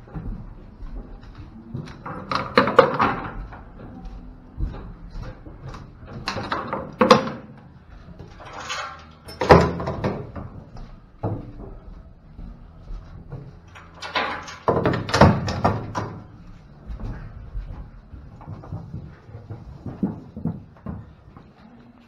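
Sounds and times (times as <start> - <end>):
metal gates clanking: 8.3 - 10.4, 13.6 - 16.3.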